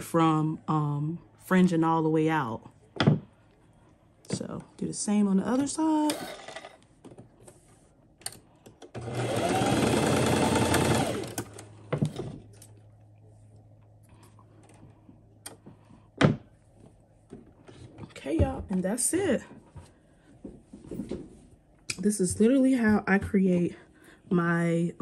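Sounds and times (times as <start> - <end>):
sewing machine stitching: 8.9 - 11.7.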